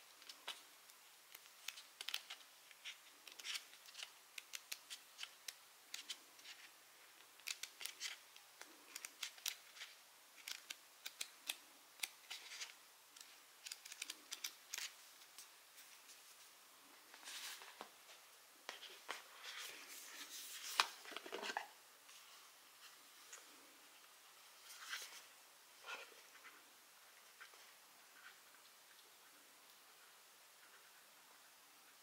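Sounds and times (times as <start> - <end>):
paper pages flicking and rustling: 18.7 - 21.6.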